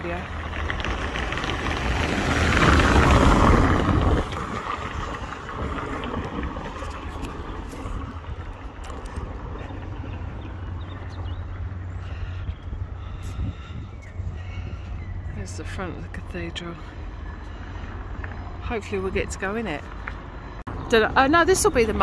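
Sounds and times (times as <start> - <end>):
car passing close by: 0.0 - 11.9
wind rumble on microphone: 0.0 - 22.0.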